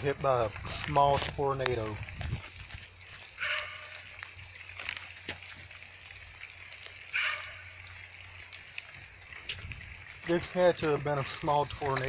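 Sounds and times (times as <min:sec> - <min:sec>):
animal call: 0:03.4 - 0:04.2, 0:07.1 - 0:07.8.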